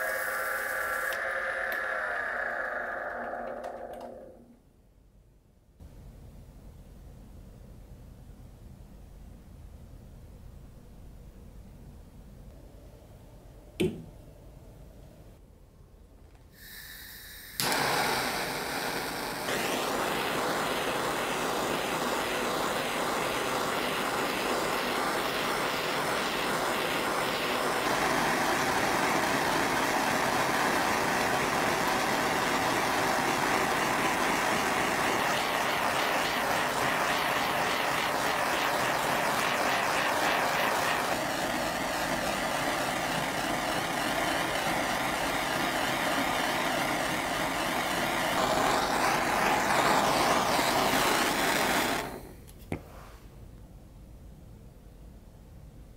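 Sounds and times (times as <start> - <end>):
lathe running: 0.0 - 4.5, 17.6 - 52.2
torch flame hissing: 0.0 - 4.5, 16.5 - 52.5.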